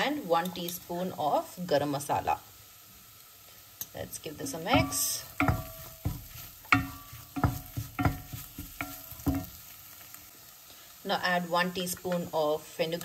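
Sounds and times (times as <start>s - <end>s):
masala sizzling: 0.0s - 13.0s
wooden spoon knocking a pot: 4.5s - 9.6s.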